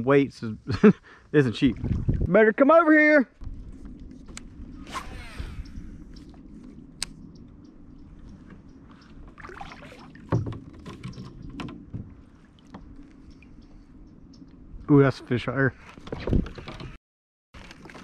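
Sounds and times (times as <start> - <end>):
water splashes and drips: 9.0 - 13.7.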